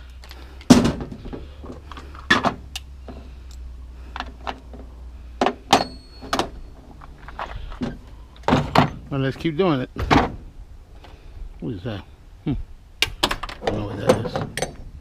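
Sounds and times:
scrap metal clanks and thumps: 0.2 - 3.4, 4.1 - 9.2, 13.0 - 14.9.

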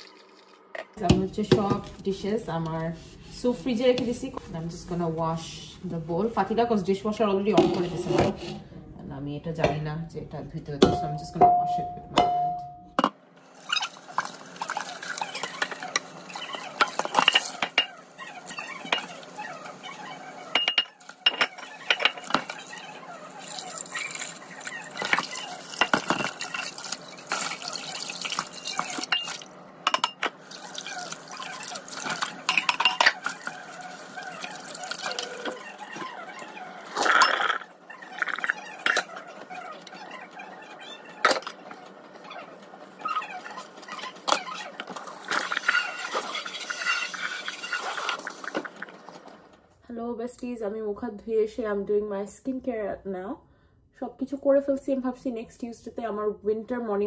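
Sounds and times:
pot being scrubbed: 1.6 - 8.6, 13.5 - 29.5, 30.4 - 49.2
pot clinking against sink: 10.8 - 13.1.

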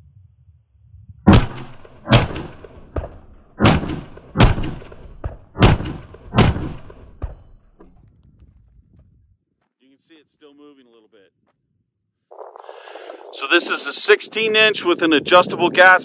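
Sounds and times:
rifle shots: 1.3 - 8.1.

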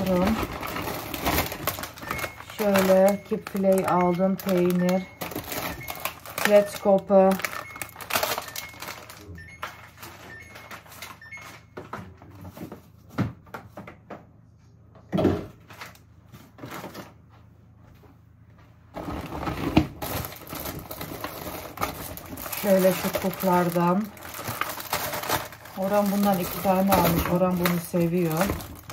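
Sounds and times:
plastic packets crinkling: 0.0 - 11.6, 19.0 - 28.9
plastic shopping bag rustling: 0.0 - 11.6, 19.0 - 28.9.

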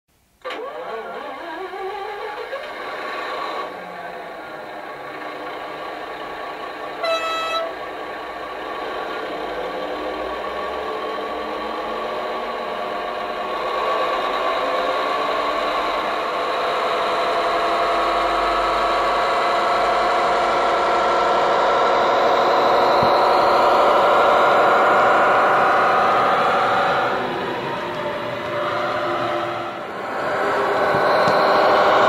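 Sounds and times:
diesel engine sound rising in pitch: 0.5 - 32.0
model train horn blast: 6.9 - 7.9.

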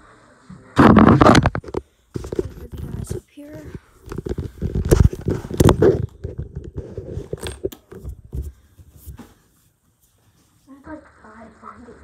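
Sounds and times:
bedding rustling and thumping: 2.1 - 9.6.

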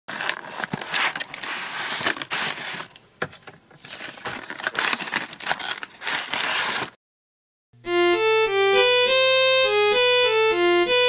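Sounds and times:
plastic packaging crinkling: 0.1 - 7.0.

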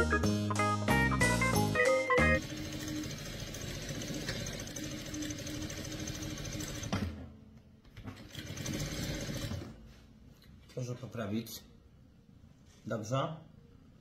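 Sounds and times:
sewing machine stitching: 2.4 - 7.3, 7.9 - 9.8.

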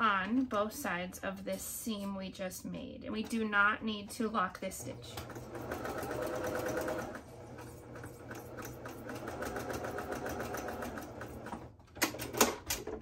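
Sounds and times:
sewing machine stitching: 4.6 - 13.0.

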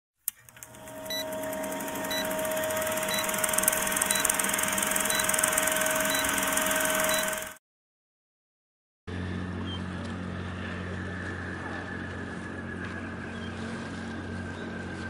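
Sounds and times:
film projector rattle: 0.3 - 7.6
ship engine low drone: 0.4 - 7.6, 9.1 - 15.0
wind: 9.1 - 15.0.

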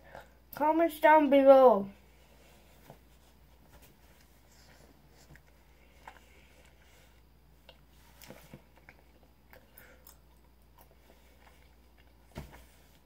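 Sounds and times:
soft chewing mouth clicks: 7.6 - 12.3.

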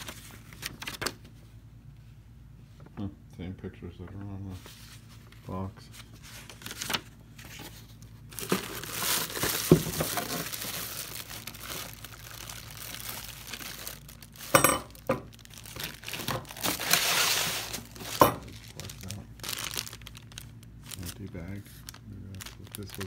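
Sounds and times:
plastic bags crinkling: 0.0 - 1.2, 6.2 - 23.0.

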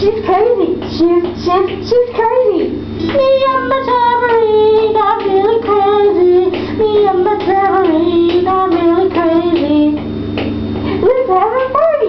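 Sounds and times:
acoustic guitar strumming: 3.0 - 9.6
person singing: 3.0 - 10.0.

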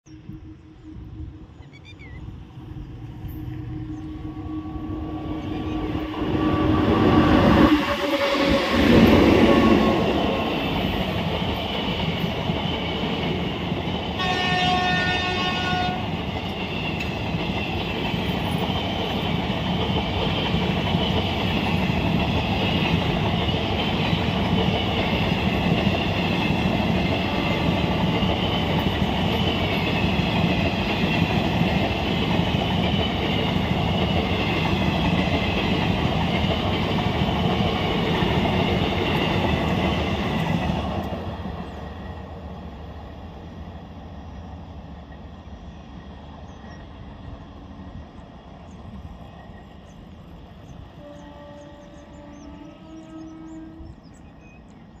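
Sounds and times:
train rumbling and clattering: 0.1 - 55.0
train horn: 3.2 - 10.2, 14.2 - 16.2, 51.0 - 54.2.

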